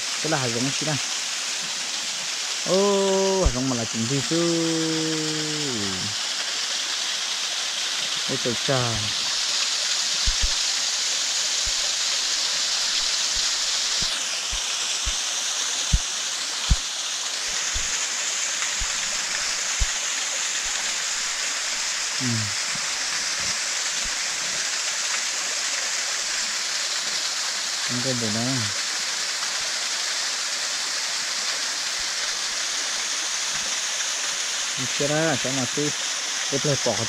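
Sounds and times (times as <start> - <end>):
waterfall splashing on stones: 0.0 - 37.0
low thumps: 10.2 - 10.6.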